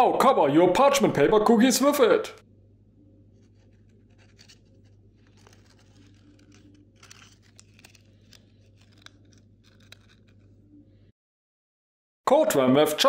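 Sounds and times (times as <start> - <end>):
low steady hum: 0.7 - 11.1
rice paper crinkling: 3.3 - 10.6.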